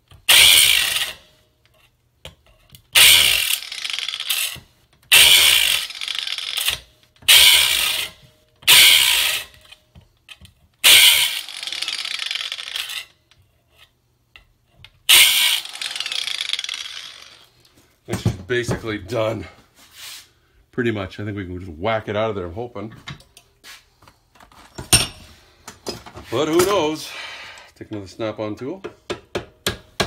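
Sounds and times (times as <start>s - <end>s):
angle grinder grinding steel: 0.3s - 1.2s, 3.0s - 9.6s, 10.8s - 13.1s, 15.1s - 17.5s.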